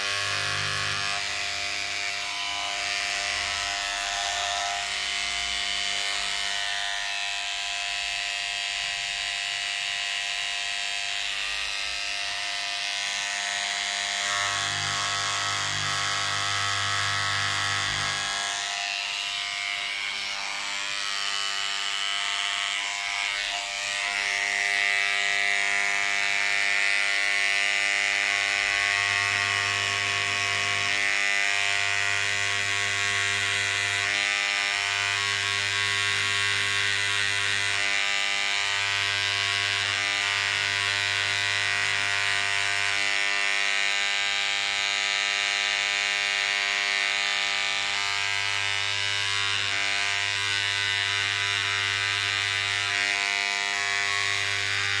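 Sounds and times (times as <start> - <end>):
small electric tool buzzing: 0.0 - 55.0.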